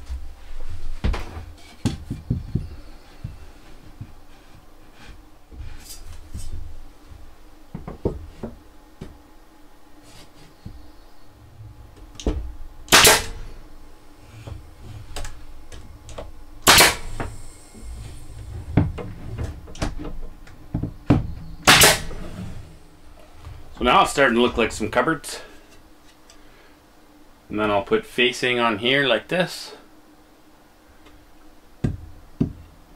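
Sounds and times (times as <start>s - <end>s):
sharp bangs: 12.8s - 13.6s, 16.6s - 17.4s, 21.6s - 22.5s.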